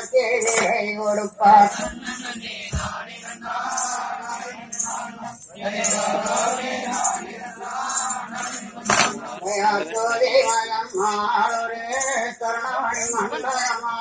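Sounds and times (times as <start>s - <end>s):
bright rhythmic beat: 0.0s - 14.0s
voices singing folk song: 0.0s - 14.0s.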